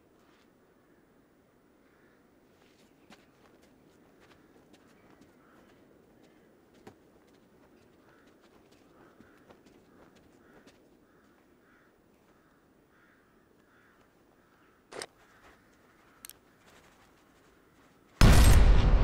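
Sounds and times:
loud blast with rumbling tail: 0:18.2 - 0:19.0.

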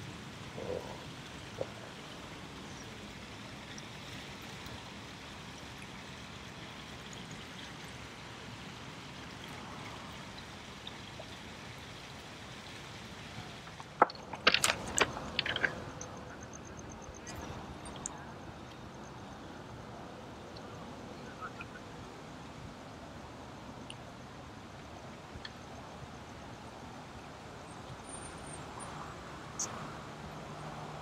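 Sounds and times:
water lapping on rocky shore: 0:00.0 - 0:23.4.

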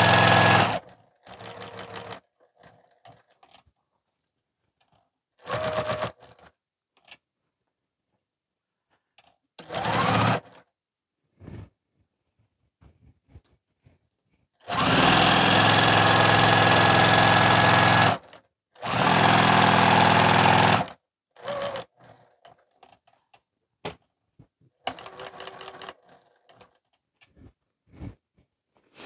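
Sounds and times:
sewing machine stitching: 0:00.0 - 0:03.7, 0:04.8 - 0:06.6, 0:09.6 - 0:10.7, 0:14.6 - 0:23.4, 0:24.7 - 0:27.0.

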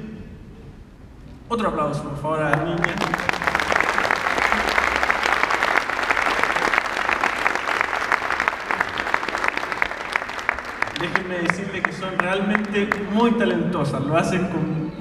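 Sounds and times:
audience applauding: 0:02.5 - 0:13.1.

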